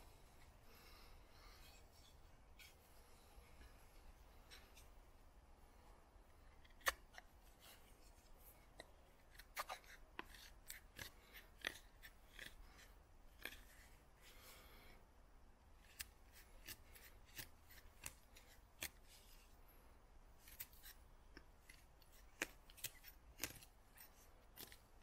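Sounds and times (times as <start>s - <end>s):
knife cutting and scraping wood: 1.4s - 5.0s, 6.4s - 14.5s, 15.8s - 19.6s, 20.4s - 25.0s
knife cracking wood: 6.6s - 7.2s.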